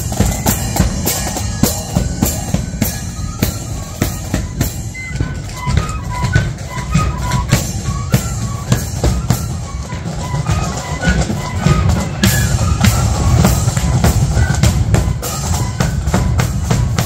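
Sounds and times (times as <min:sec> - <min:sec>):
flutes playing a melody: 0:00.0 - 0:17.0
marching bass drum and cymbals: 0:00.0 - 0:17.0.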